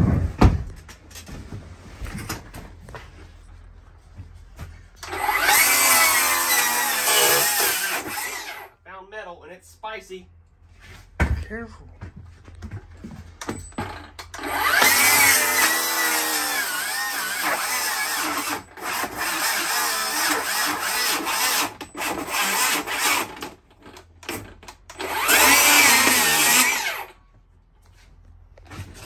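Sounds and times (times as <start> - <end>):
power tool cutting: 5.0 - 8.7, 14.3 - 27.2.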